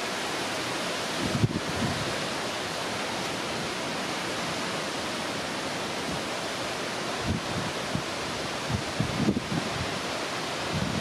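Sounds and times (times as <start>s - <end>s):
strong wind over rough sea: 0.0s - 11.0s
gusts buffeting microphone: 0.9s - 2.3s, 7.1s - 11.0s.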